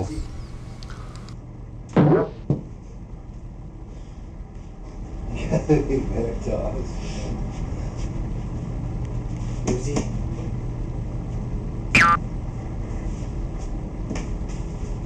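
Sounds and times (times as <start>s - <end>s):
low steady hum: 0.0s - 4.7s, 10.5s - 13.0s.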